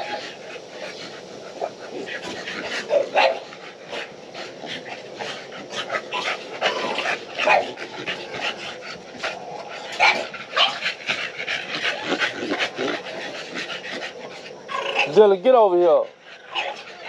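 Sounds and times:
dogs panting: 0:00.0 - 0:17.0.

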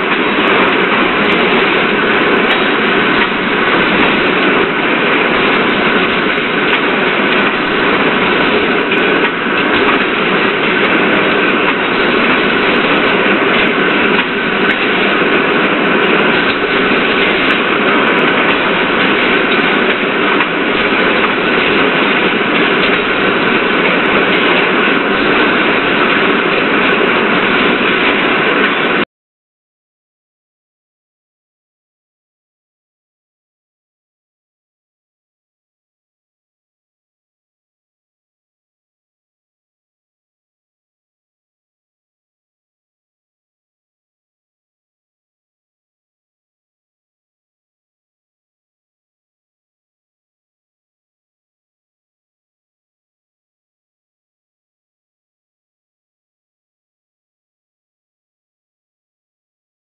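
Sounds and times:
machinery hum and hiss: 0:00.0 - 0:29.0.

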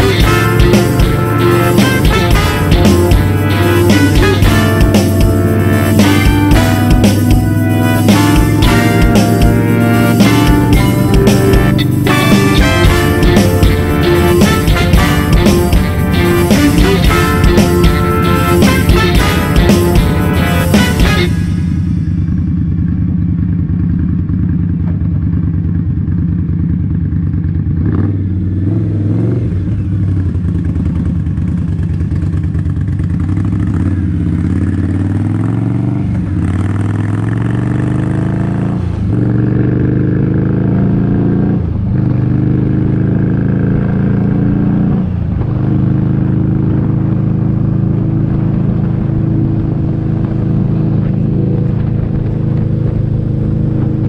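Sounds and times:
motorcycle engine shifting gears: 0:22.1 - 0:54.0
low rumble: 0:47.0 - 0:54.0.

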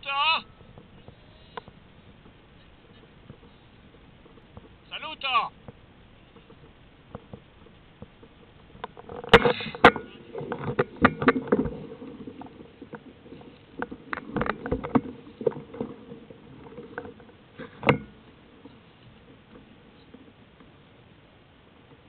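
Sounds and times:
faint hiss: 0:00.0 - 0:10.8
mountain bike rattling and knocking: 0:00.6 - 0:04.9, 0:05.5 - 0:18.4.

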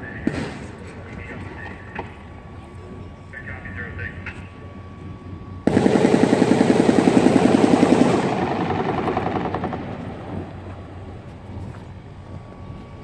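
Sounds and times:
minigun firing rapid burst: 0:05.7 - 0:10.1.

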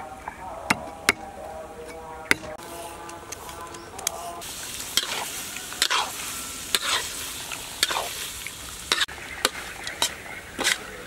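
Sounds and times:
metal spatula scraping pan: 0:04.2 - 0:08.3, 0:08.9 - 0:11.0
food sizzling in a hot pan: 0:04.4 - 0:09.6.

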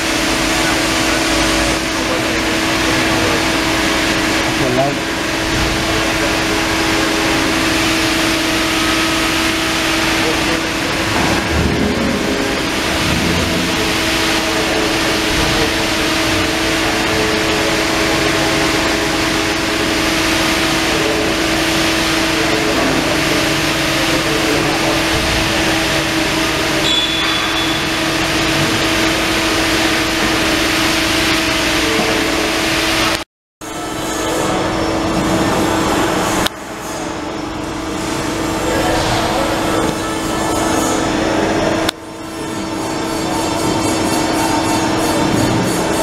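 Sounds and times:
machine drone and hiss: 0:00.0 - 0:46.0
short high beep: 0:26.8 - 0:28.1.

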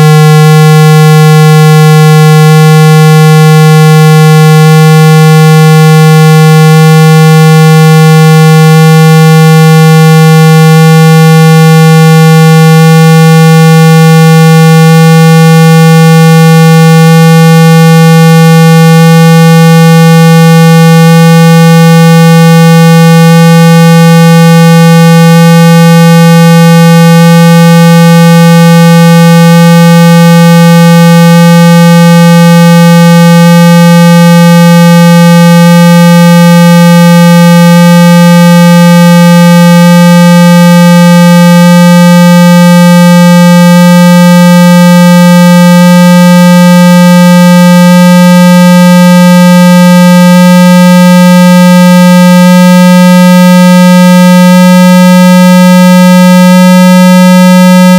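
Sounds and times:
electronic test tone rising: 0:00.0 - 0:57.9.

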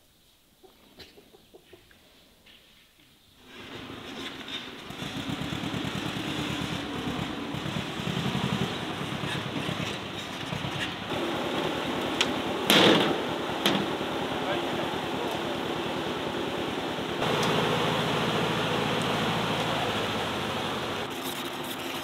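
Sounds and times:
tractor engine running: 0:03.8 - 0:21.1
loud clatter: 0:12.6 - 0:13.9.

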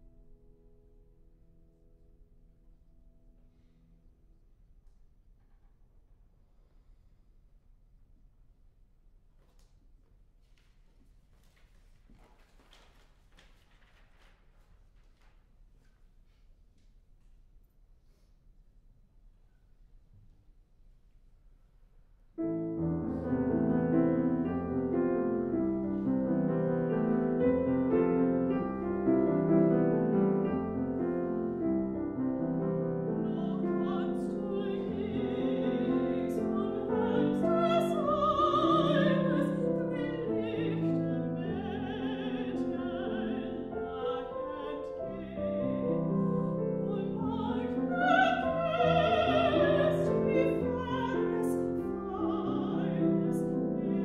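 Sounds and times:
grand piano: 0:00.0 - 0:17.0, 0:21.4 - 0:54.0
soprano singing with vibrato: 0:32.9 - 0:54.0.

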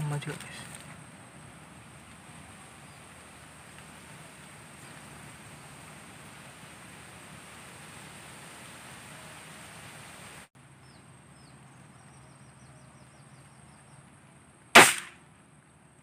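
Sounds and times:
bird chirping: 0:10.8 - 0:14.4
air rifle shot: 0:14.7 - 0:15.2.

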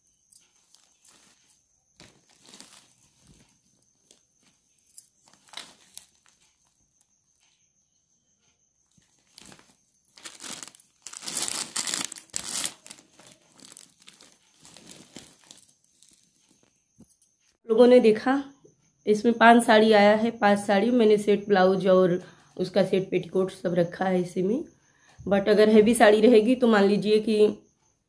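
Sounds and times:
fabric bag crinkling and rustling: 0:00.3 - 0:06.8, 0:08.9 - 0:16.8.

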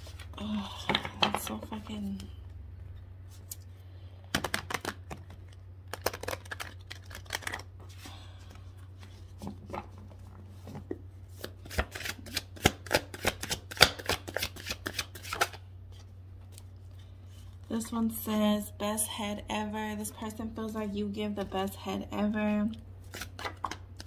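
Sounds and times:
steady low hum: 0:00.0 - 0:14.3, 0:15.1 - 0:24.0
cards being shuffled: 0:04.3 - 0:08.1, 0:09.0 - 0:16.8, 0:23.0 - 0:24.0.

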